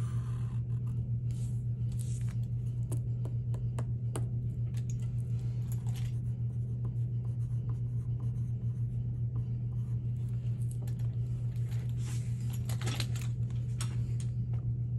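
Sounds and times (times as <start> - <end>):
pencil writing on paper: 0.0 - 1.0, 6.1 - 10.4
steady low hum: 0.0 - 14.9.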